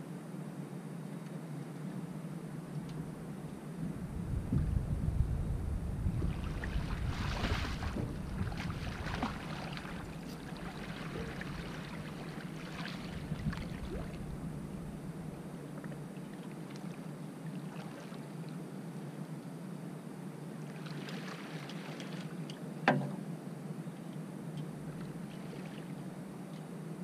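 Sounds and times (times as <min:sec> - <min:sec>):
low rumble: 0:03.0 - 0:12.2
water splashing beside boat: 0:06.0 - 0:14.5, 0:15.8 - 0:18.4, 0:20.7 - 0:23.2.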